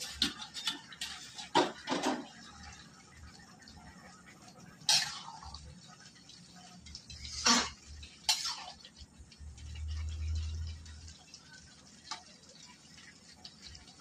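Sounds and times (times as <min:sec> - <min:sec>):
spatula scraping pot: 0:00.0 - 0:02.2
metal lid and spatula clanking: 0:00.0 - 0:02.4.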